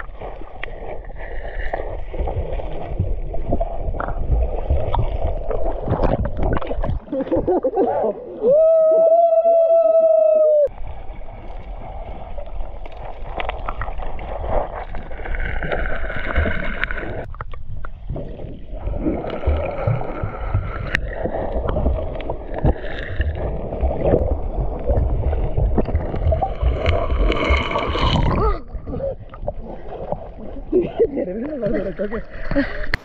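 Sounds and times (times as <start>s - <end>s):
sharp water splashes: 12.9s - 17.3s, 18.8s - 30.2s.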